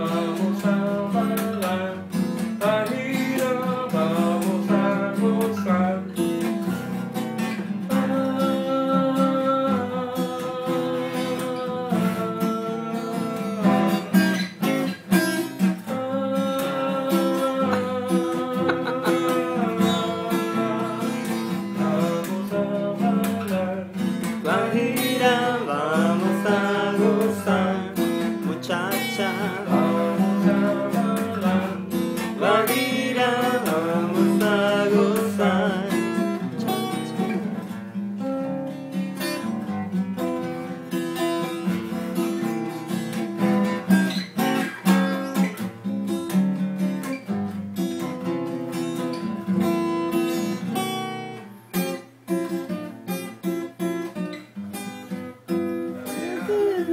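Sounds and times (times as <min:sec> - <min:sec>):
man singing: 0:00.0 - 0:06.5, 0:07.9 - 0:14.4, 0:15.6 - 0:37.4, 0:55.9 - 0:56.9
acoustic guitar strumming: 0:00.0 - 0:56.9.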